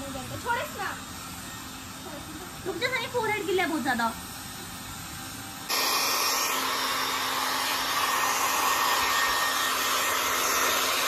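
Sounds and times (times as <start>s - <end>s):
hair dryer blowing: 5.6s - 11.0s.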